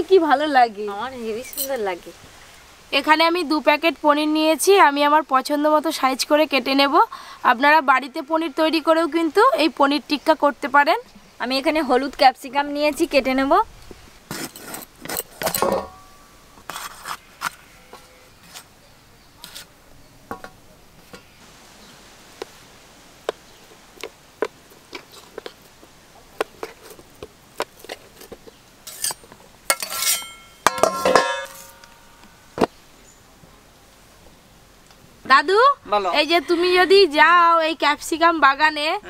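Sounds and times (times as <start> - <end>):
steel plates clinking: 1.5 - 1.9, 14.4 - 16.3, 28.8 - 32.4.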